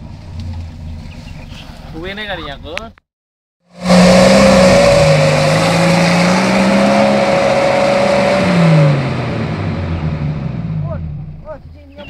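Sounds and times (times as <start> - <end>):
engine at high revs: 3.6 - 11.3.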